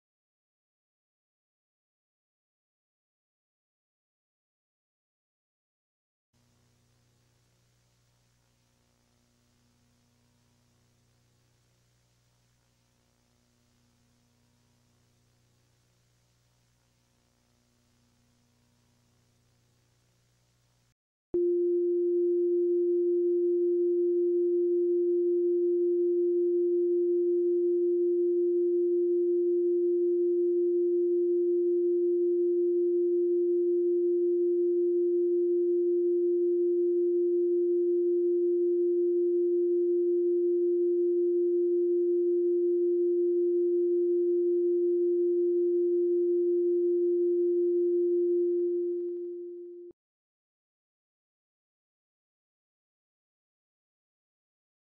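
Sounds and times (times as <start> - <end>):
steady test tone: 21.4 - 49.9.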